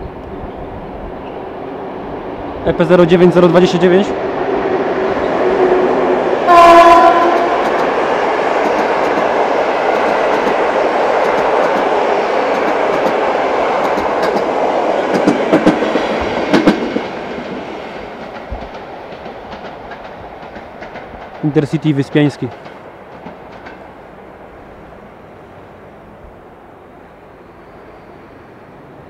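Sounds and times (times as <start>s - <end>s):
train wheels rushing on rails: 0.0s - 26.4s
locomotive horn blast: 6.5s - 7.6s
wheels clacking over rail joints: 6.5s - 24.3s.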